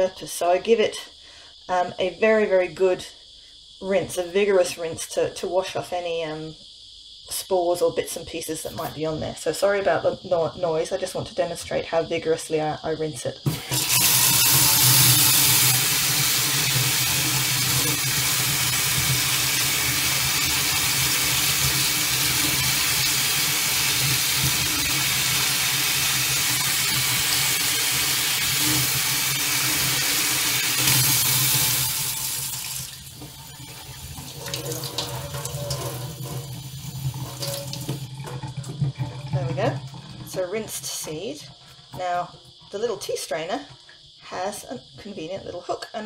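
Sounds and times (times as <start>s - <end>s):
tap water splashing into sink: 13.5s - 40.4s.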